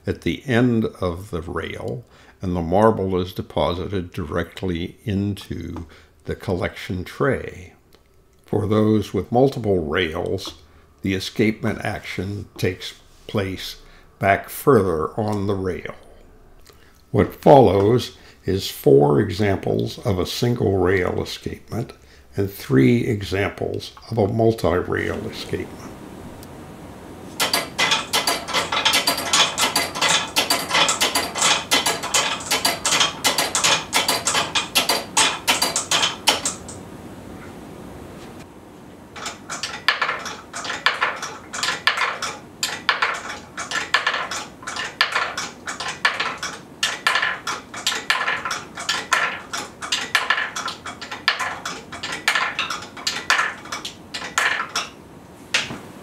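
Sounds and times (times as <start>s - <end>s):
wooden levers knocking: 27.4s - 36.8s, 39.2s - 55.8s.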